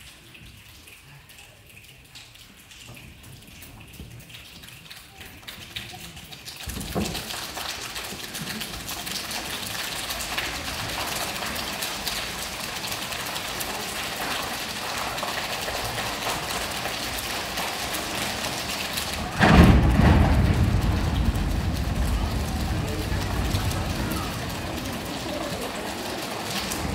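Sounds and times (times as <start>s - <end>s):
audience clapping: 5.0s - 26.9s
sudden deep thud: 19.3s - 24.4s.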